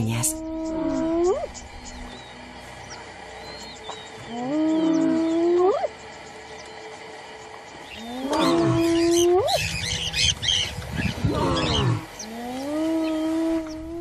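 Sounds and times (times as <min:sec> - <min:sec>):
lion bellowing calls: 0:02.9 - 0:06.0, 0:07.9 - 0:14.0
lions growling: 0:02.9 - 0:06.0, 0:07.9 - 0:09.6, 0:10.9 - 0:14.0.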